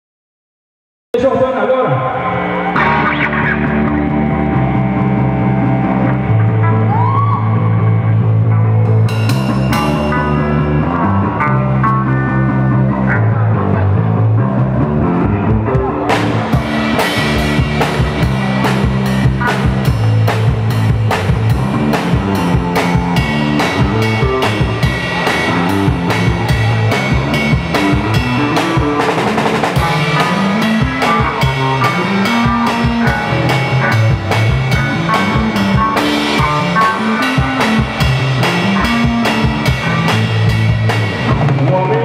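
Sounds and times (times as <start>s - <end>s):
bass line: 1.2s - 42.0s
electric guitars: 1.2s - 42.0s
drum kit beat: 15.3s - 42.0s.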